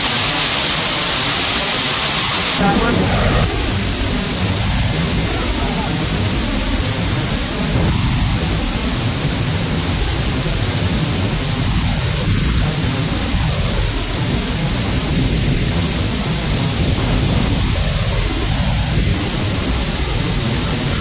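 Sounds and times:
aircraft engines roaring: 0:00.6 - 0:21.0
thin high whine: 0:02.1 - 0:06.4.

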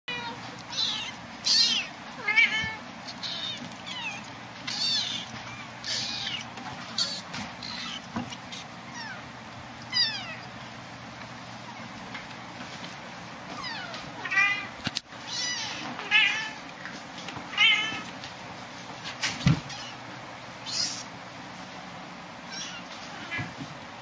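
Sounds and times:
kittens mewing: 0:00.1 - 0:10.6, 0:13.5 - 0:16.7, 0:19.6 - 0:21.2, 0:22.4 - 0:23.6.

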